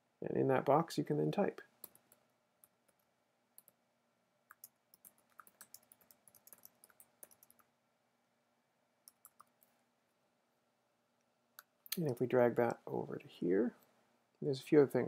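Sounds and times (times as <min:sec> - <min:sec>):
faint keyboard typing: 0:01.8 - 0:03.8, 0:04.5 - 0:07.7, 0:09.0 - 0:09.8, 0:11.6 - 0:12.8.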